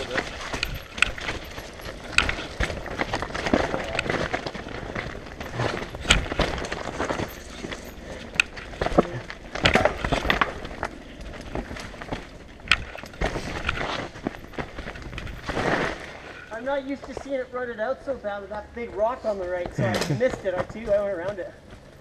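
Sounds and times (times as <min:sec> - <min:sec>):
bike knocking and rattling: 0:00.0 - 0:17.5
tyres crunching over gravel: 0:00.0 - 0:17.5.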